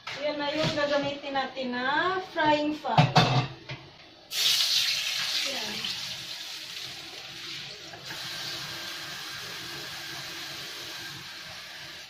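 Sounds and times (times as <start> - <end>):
water sizzling in hot oil: 4.3 - 12.0.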